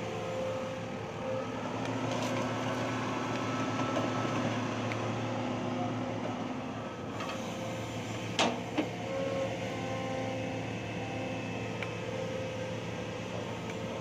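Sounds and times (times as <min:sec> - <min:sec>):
excavator diesel engine running: 0:00.0 - 0:14.0.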